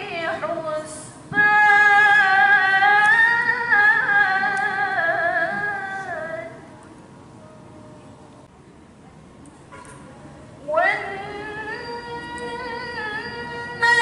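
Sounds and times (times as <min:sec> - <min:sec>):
girl reciting melodically: 0:00.0 - 0:06.7, 0:10.6 - 0:14.0.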